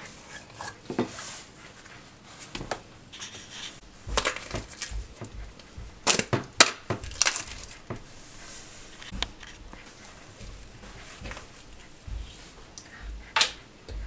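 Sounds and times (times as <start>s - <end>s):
slime squishing and crackling: 3.8s - 13.4s.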